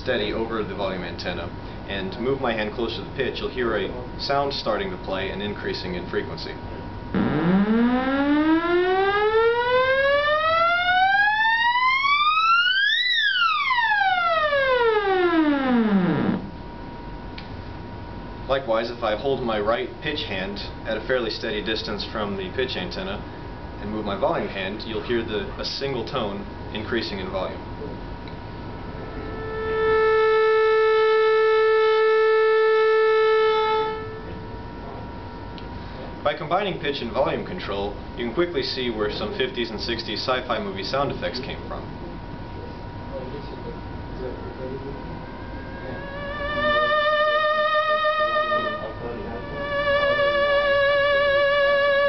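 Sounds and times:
theremin tone gliding in pitch: 7.1 - 16.6, 28.7 - 34.6, 45.0 - 52.0.

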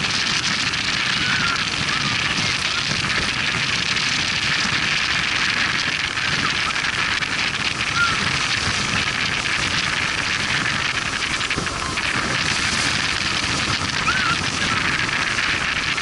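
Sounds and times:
low engine rumble: 0.0 - 16.0
water against hull: 0.0 - 16.0
wind buffeting microphone: 0.0 - 16.0.

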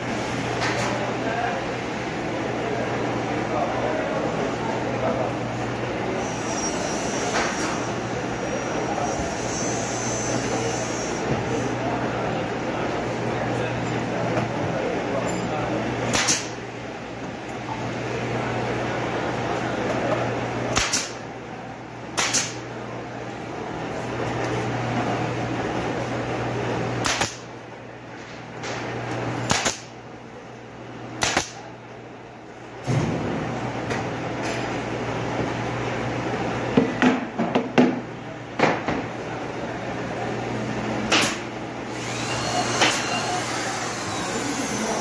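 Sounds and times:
nail gun shots: 16.1 - 16.6, 20.7 - 21.2, 22.2 - 22.6, 27.0 - 27.5, 29.4 - 29.9, 31.2 - 31.6, 41.1 - 41.4, 42.8 - 43.1.

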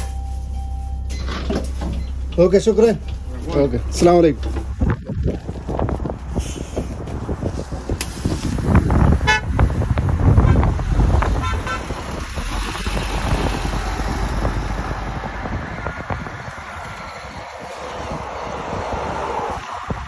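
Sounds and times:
bus engine rumble: 0.0 - 20.0
bus horn toots: 9.1 - 9.6, 10.3 - 12.0.

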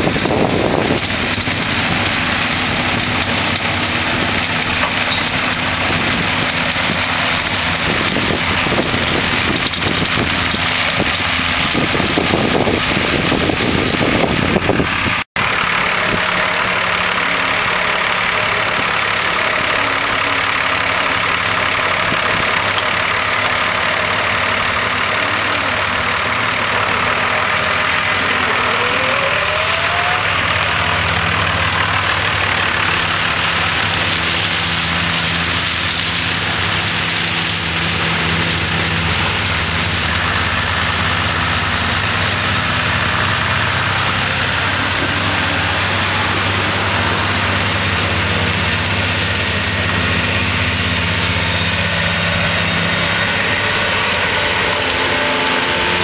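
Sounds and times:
rushing noise: 0.0 - 56.0
tractor diesel engine idling: 0.0 - 56.0.

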